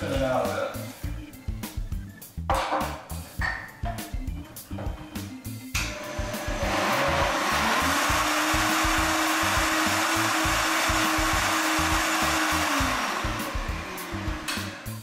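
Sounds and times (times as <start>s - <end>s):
blender motor running: 5.8s - 15.0s.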